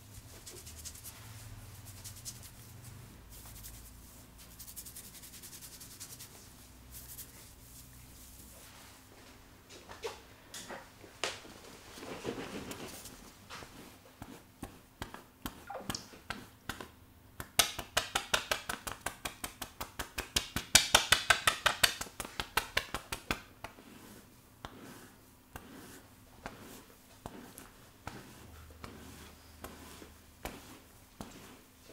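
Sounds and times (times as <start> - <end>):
bristle brush scratching scalp: 0.0 - 9.0, 12.5 - 16.6, 22.0 - 31.9
fingers rustling in hair: 0.0 - 9.4, 11.9 - 31.9.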